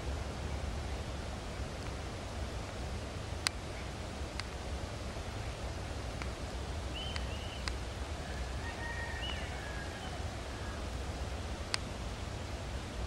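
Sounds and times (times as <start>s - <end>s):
faint sharp clicks: 1.8s - 2.0s, 3.4s - 3.7s, 4.3s - 4.7s, 6.1s - 6.4s, 7.0s - 7.8s, 9.2s - 9.4s, 11.6s - 11.9s.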